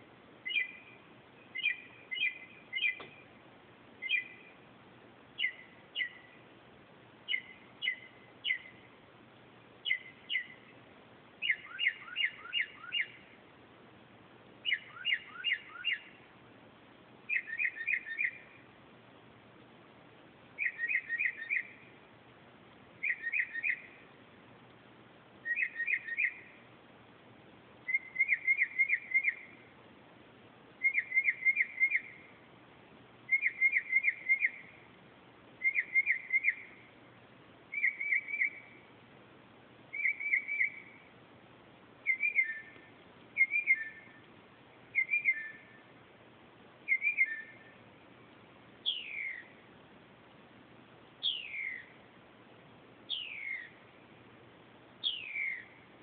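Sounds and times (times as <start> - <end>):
mockingbird singing: 0.4 - 3.4, 4.0 - 4.6, 5.4 - 6.4, 7.3 - 8.9, 9.8 - 10.7, 11.4 - 13.3, 14.6 - 16.2, 17.3 - 18.6, 20.6 - 21.9, 23.0 - 24.0, 25.4 - 26.6, 27.9 - 29.7, 30.8 - 32.4, 33.3 - 34.9, 35.6 - 36.9, 37.7 - 38.9, 39.9 - 41.1, 42.0 - 44.3, 44.9 - 45.9, 46.8 - 47.8, 48.8 - 49.6, 51.2 - 52.0, 53.1 - 53.8, 55.0 - 55.8.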